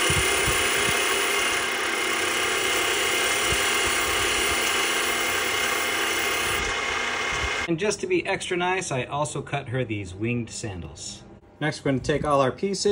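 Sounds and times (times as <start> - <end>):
grinding wheel whining: 0.0 - 7.7.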